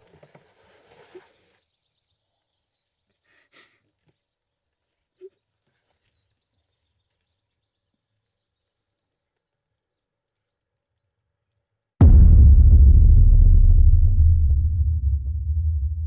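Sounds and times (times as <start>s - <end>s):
brief low note: 12.0s - 16.0s.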